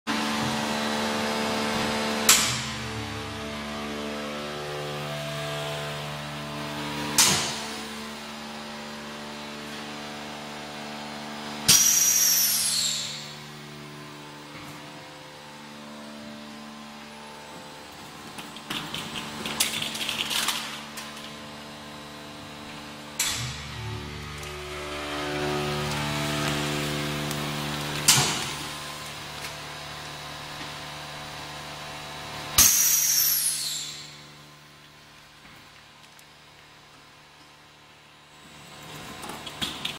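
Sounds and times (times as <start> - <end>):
blasts of released air: 11.7 - 13.1
packaging machine humming: 16.4 - 34.2.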